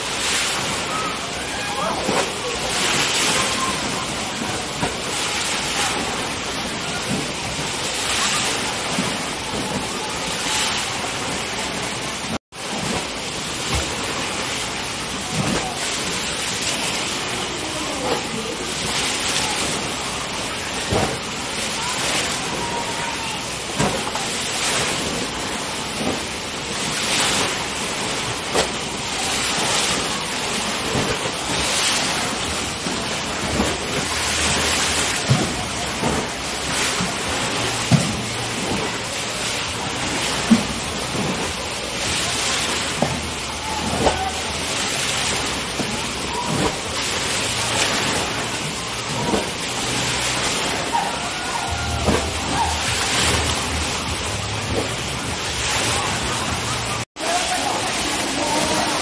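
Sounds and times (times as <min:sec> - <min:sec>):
waves surging and splashing: 0:00.0 - 0:59.0
people shouting: 0:21.8 - 0:23.5, 0:50.6 - 0:53.6.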